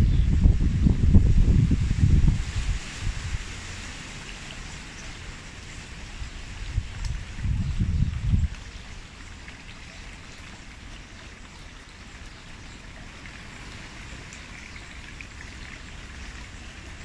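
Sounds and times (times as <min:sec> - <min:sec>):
wind rumble on microphone: 0:00.0 - 0:03.8, 0:06.1 - 0:09.0
wind rustling through foliage: 0:00.0 - 0:17.0.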